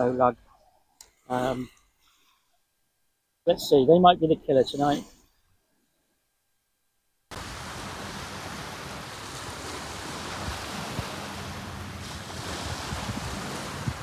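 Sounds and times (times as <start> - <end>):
waves washing onto shingle: 7.3 - 14.0
wind on microphone: 7.3 - 14.0.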